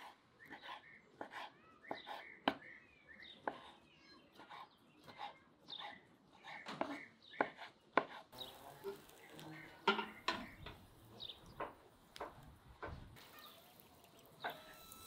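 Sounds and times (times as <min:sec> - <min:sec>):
knife chopping on wooden board: 0:00.0 - 0:02.7, 0:03.4 - 0:08.2.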